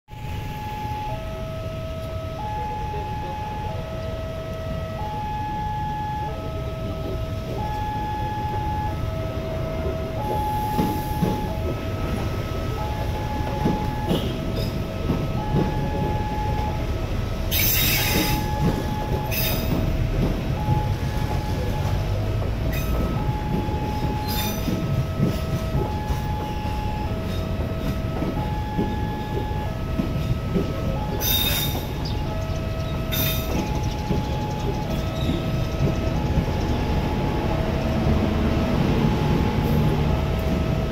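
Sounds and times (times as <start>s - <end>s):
train carriages rumbling: 0.1s - 40.9s
train wheel screeches: 17.5s - 19.9s, 31.1s - 32.1s.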